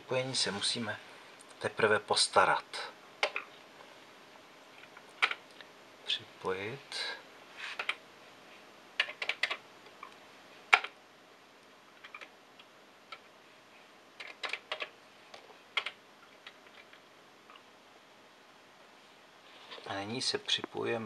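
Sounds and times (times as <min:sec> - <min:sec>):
keyboard key presses: 0:14.2 - 0:14.9.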